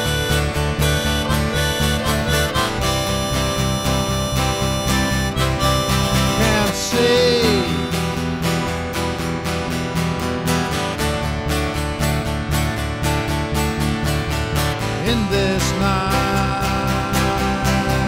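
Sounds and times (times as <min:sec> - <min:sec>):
harmonica melody: 0:00.0 - 0:10.7, 0:15.4 - 0:18.0
acoustic guitar strumming: 0:00.0 - 0:18.0.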